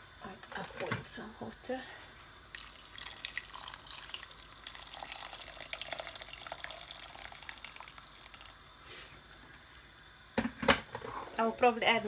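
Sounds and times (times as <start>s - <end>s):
water pouring into a pot: 2.5s - 8.8s.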